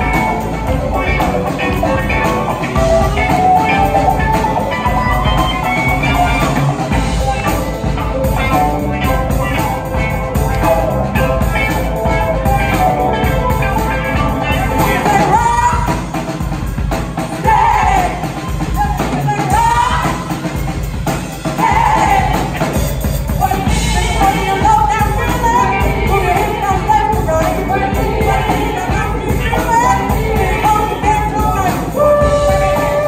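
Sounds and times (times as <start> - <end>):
person singing: 0.0 - 16.2, 23.4 - 33.0
drum kit: 0.0 - 33.0
electric bass: 0.0 - 33.0.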